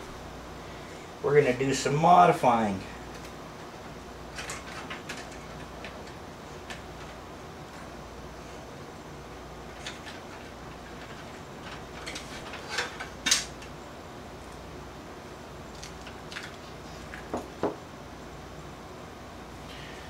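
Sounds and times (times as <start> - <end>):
metal computer case parts clattering: 4.3 - 7.2, 9.7 - 13.7.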